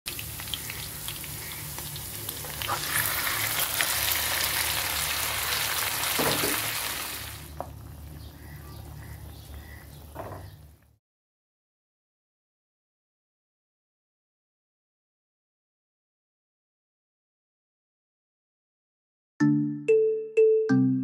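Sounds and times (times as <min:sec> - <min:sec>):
onions sizzling in oil: 0:00.1 - 0:08.1.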